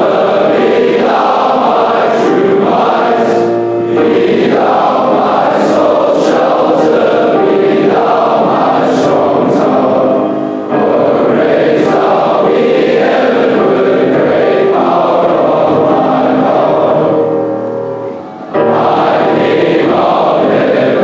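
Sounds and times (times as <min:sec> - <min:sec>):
boys choir singing: 0:00.0 - 0:21.0.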